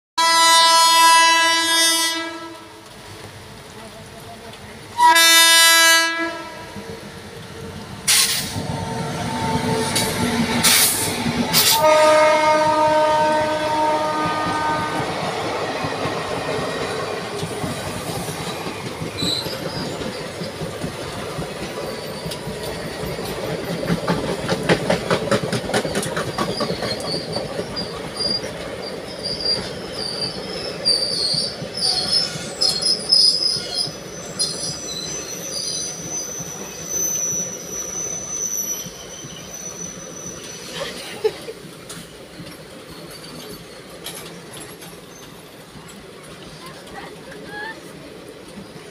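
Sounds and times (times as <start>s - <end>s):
locomotive horn: 0.2s - 2.8s, 5.0s - 6.7s, 11.6s - 15.2s
train coaches rolling past: 0.2s - 48.9s
wheels clicking over rail joints: 14.1s - 34.9s, 41.4s - 48.9s
high-pitched wheel squeals: 29.1s - 40.9s.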